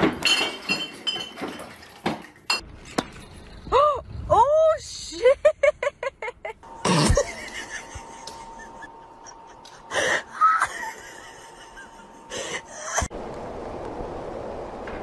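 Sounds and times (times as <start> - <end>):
person laughing: 5.2 - 13.1.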